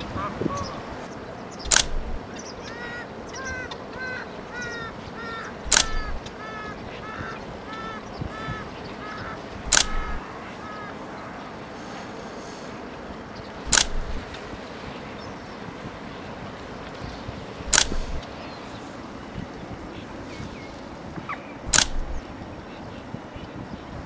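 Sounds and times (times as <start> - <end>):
waterbird calling nasal notes: 0.0 - 11.4, 13.6 - 14.4, 17.6 - 23.6
camera shutter clicks: 1.7 - 2.2, 5.7 - 6.2, 9.7 - 10.2, 13.7 - 14.2, 17.7 - 18.2, 21.7 - 22.2.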